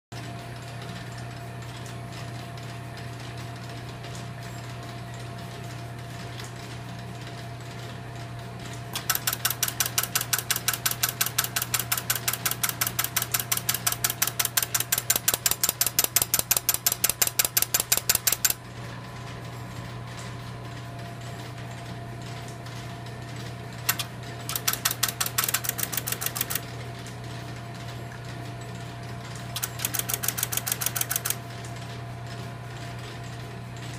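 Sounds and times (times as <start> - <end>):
switching equipment hum: 7.7 - 32.8
telephone switches clicking: 9.0 - 18.6, 23.9 - 26.6.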